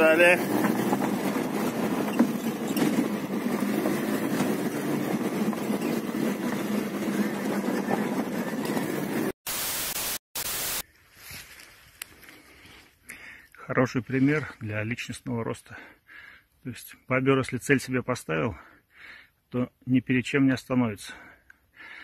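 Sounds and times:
car engine and tyre noise: 0.0s - 9.4s
loud hiss bursts: 9.5s - 10.8s.

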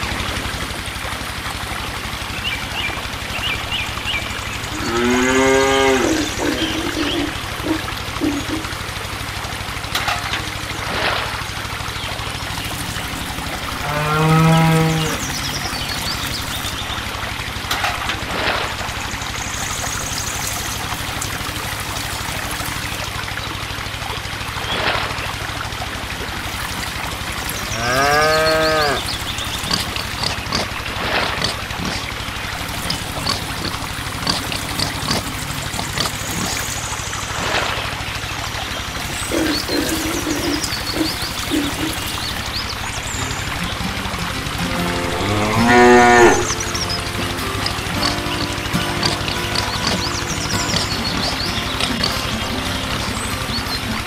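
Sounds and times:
steady low hum: 0.0s - 54.0s
water pouring and splashing: 0.0s - 54.0s
cow mooing: 4.7s - 8.6s, 13.7s - 15.4s, 27.7s - 29.1s, 44.7s - 50.0s.

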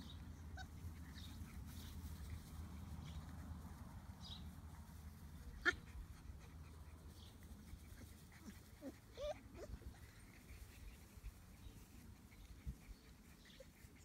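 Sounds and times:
puppy whining: 0.4s - 1.3s, 5.6s - 10.7s
puppy yipping: 0.4s - 1.3s, 8.4s - 10.0s.

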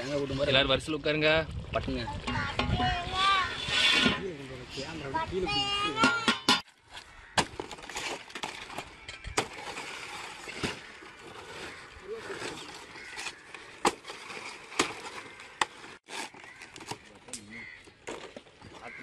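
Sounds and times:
palm fronds rustling and scraping: 6.6s - 19.0s
stiff leaves cracking: 7.2s - 17.8s.

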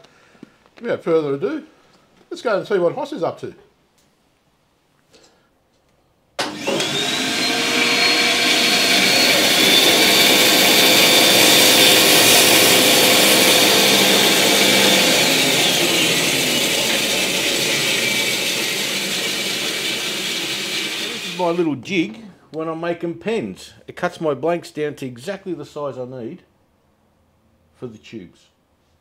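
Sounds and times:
bandsaw whining: 6.4s - 21.6s.

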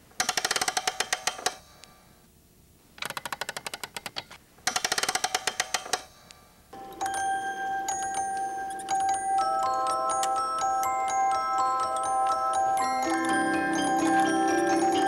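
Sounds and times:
music box mechanism clicking: 0.2s - 1.6s, 3.0s - 6.1s, 6.8s - 15.0s
music box bell-like notes: 6.8s - 15.0s.

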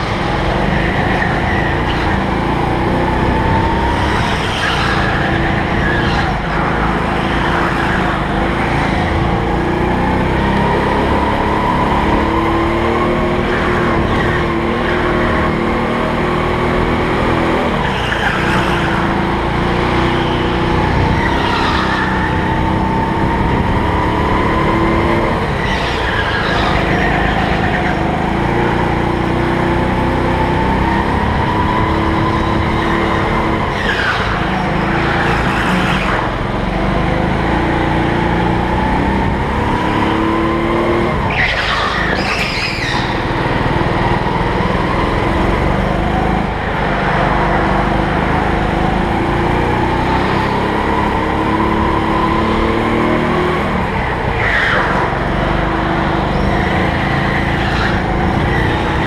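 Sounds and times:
tyre squeal: 0.0s - 2.6s, 3.2s - 9.5s, 17.7s - 28.8s, 30.2s - 36.4s, 41.2s - 45.1s, 53.9s - 59.0s
go-kart engine running hard: 0.0s - 59.0s.

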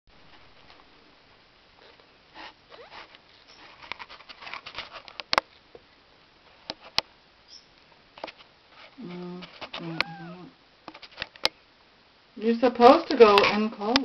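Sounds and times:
kittens scratching and rustling: 1.8s - 5.8s, 8.1s - 11.5s.

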